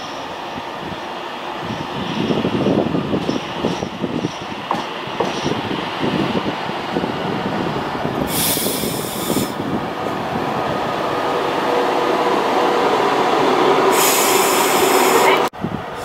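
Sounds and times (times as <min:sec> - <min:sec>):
electric train rumbling past: 0:00.0 - 0:16.0
burst of hiss: 0:08.3 - 0:09.6, 0:13.9 - 0:15.3.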